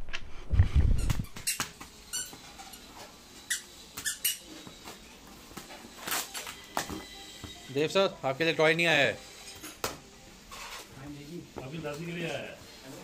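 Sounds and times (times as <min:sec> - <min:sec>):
carton fastening squeaks and clicks: 0:00.9 - 0:05.0.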